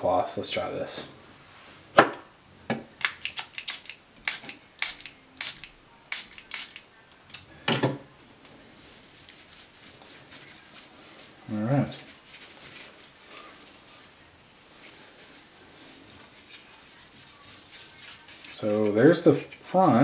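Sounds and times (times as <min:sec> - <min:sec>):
pump spray bottle spritzing: 0:03.0 - 0:06.8.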